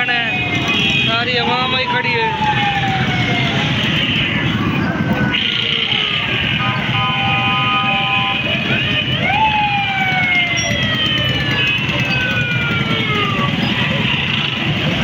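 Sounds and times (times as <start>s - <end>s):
crowd voices: 0.0s - 15.0s
sirens: 0.0s - 15.0s
street traffic engines: 0.0s - 15.0s.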